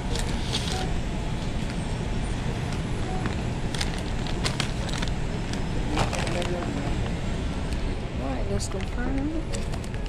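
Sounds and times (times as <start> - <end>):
paper bag crinkling: 3.7 - 6.9.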